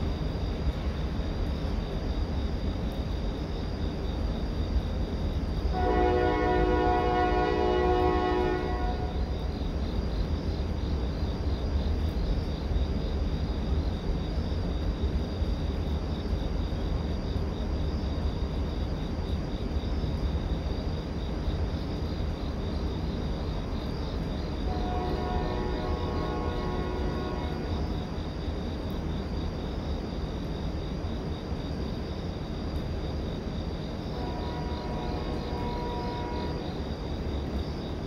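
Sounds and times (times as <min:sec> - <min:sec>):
insects chirping faintly: 0:00.0 - 0:38.0
passing train rumble: 0:00.0 - 0:38.0
train horn chord: 0:05.7 - 0:09.3, 0:24.7 - 0:27.9, 0:34.1 - 0:36.8.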